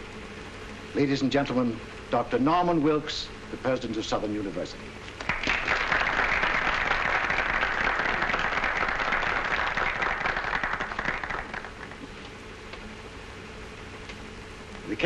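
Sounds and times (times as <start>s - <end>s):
audience applause: 5.2s - 12.1s.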